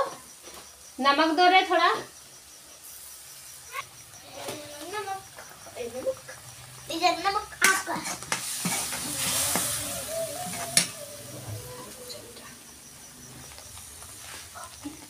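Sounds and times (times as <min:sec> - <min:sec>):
spice paste sizzling in oil: 0:00.1 - 0:15.0
metal spatula scraping a pan: 0:07.6 - 0:11.6.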